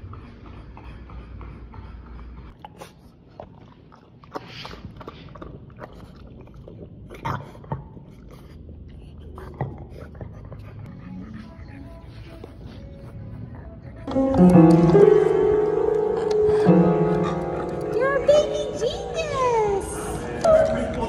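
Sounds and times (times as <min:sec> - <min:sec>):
dog lapping water: 0:02.5 - 0:10.9
wet clicks and slurps: 0:02.6 - 0:10.3.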